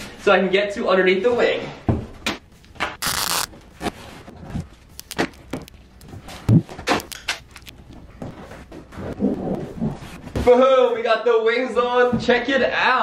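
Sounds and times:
tape rubbing and knocks: 2.8 - 3.5
duct tape ripping: 3.0 - 3.6, 4.9 - 5.8, 6.8 - 7.8.

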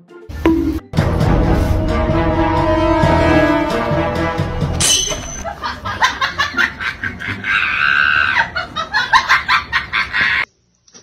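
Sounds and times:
person laughing hard: 5.4 - 10.5.

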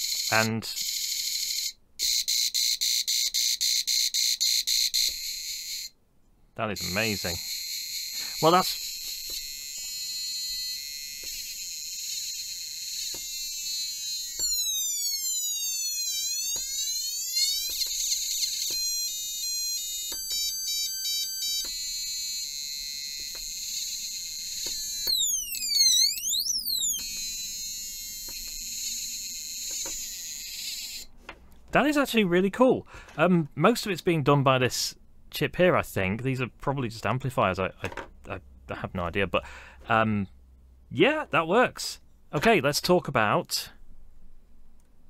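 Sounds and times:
electronic buzzer alarm sounds: 0.0 - 6.0, 6.7 - 31.1.

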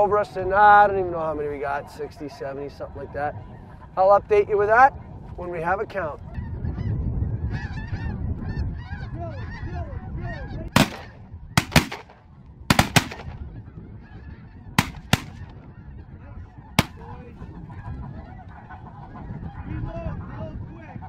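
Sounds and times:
geese honking: 0.0 - 21.0
shotgun blasts: 10.8 - 13.4, 14.8 - 15.5, 16.8 - 17.0.

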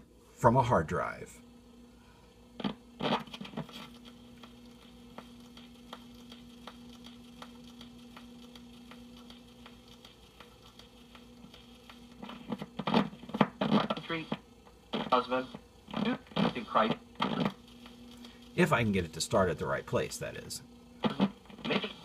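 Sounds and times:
crackling surface noise: 2.6 - 14.2, 15.9 - 18.4.

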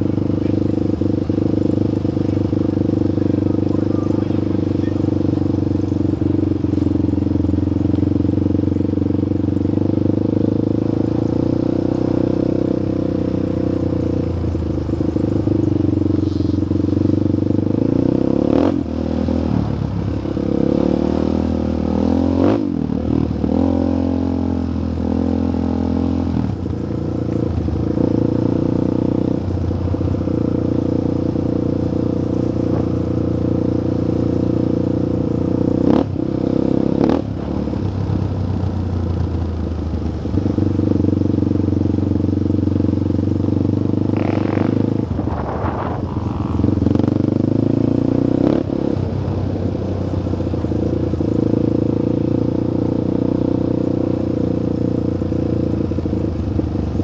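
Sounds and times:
off-road motorcycle engine revving: 0.0 - 57.0.

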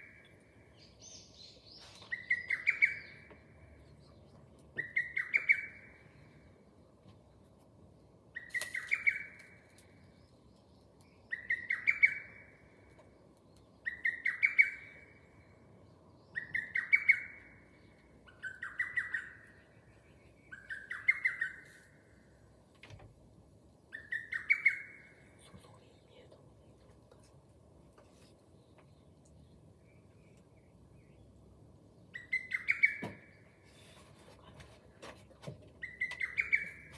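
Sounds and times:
cuckoo singing: 35.8 - 36.9.

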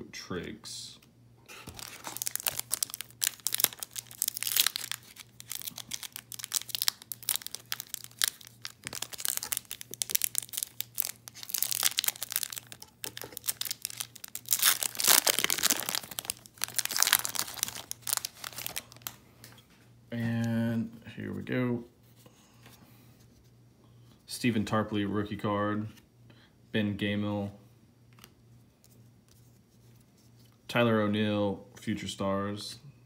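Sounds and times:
wrapper crinkling and tearing: 1.6 - 19.2.

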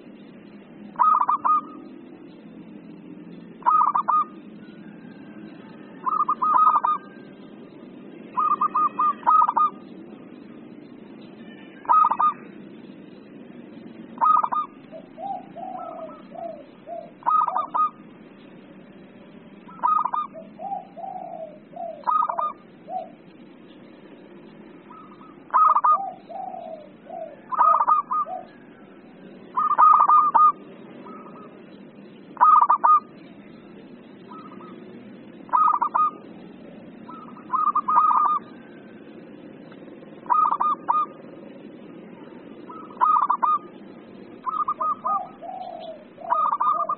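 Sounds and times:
dove cooing: 0.9 - 1.9, 3.5 - 7.4, 8.3 - 9.9, 11.5 - 12.7, 14.2 - 18.1, 19.6 - 23.4, 24.8 - 33.4, 34.2 - 46.9.

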